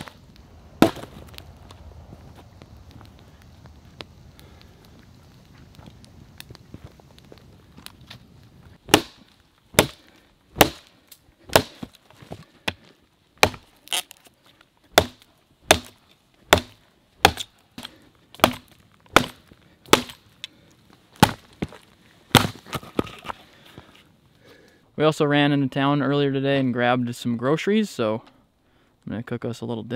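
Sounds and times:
hatchet chopping a log: 0.8s - 1.1s, 8.9s - 10.9s, 11.5s - 11.9s, 13.4s - 14.0s, 14.9s - 20.2s, 21.2s - 21.5s, 22.3s - 23.1s.

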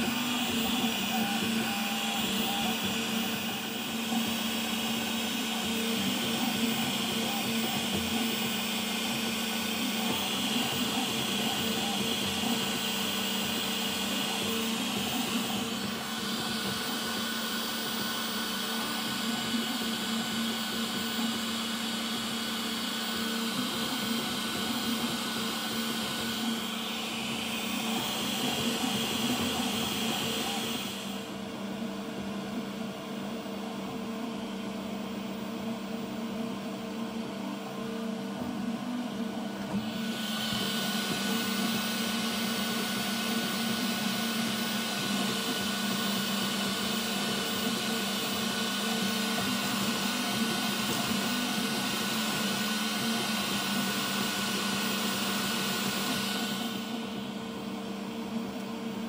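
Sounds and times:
printer fans and motors whirring: 0.0s - 59.0s.

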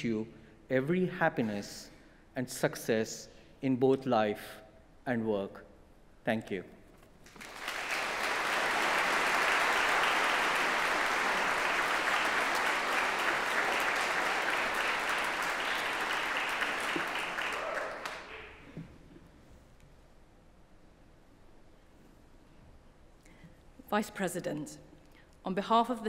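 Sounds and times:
audience applauding: 7.2s - 18.7s.

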